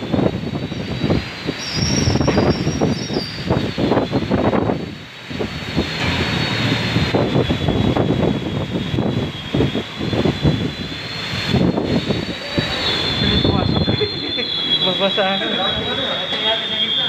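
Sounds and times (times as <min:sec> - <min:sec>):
heavy rain pouring: 0:00.0 - 0:16.1
thin high tone: 0:10.7 - 0:17.0.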